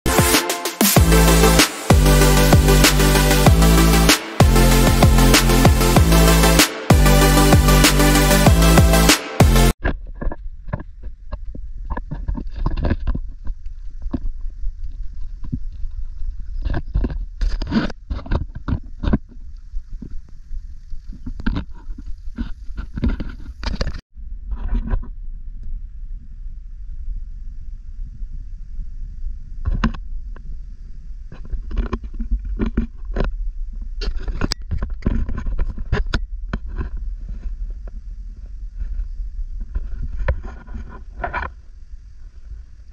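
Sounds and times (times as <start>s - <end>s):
electronic intro music: 0.0s - 9.8s
wind buffeting camera microphone: 10.0s - 42.9s.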